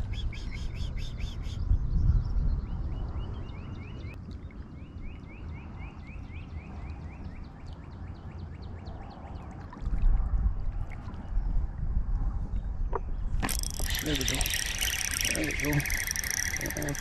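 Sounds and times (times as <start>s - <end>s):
wind rumbling on microphone: 0.0s - 4.2s, 8.8s - 17.0s
bird chirping: 0.0s - 9.5s, 12.8s - 17.0s.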